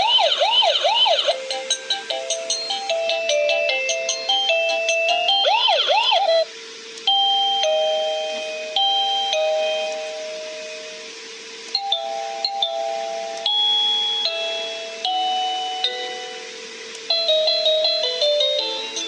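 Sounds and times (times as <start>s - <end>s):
doorbell chime melody: 7.1s - 10.2s, 11.8s - 16.4s.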